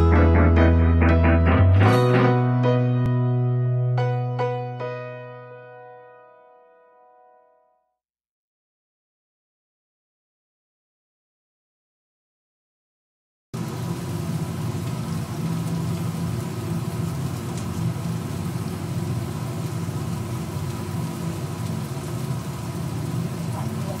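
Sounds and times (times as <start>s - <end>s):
fries sizzling in hot oil: 13.6s - 24.0s.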